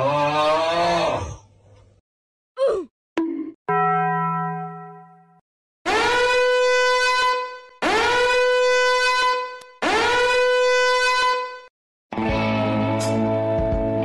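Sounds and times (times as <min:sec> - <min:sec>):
horn blasts sliding up in pitch: 0:05.9 - 0:11.7.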